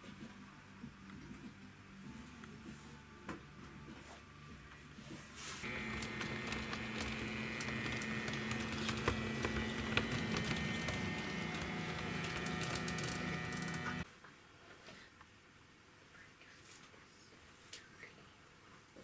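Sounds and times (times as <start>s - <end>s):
electric motor whine: 5.6s - 14.0s.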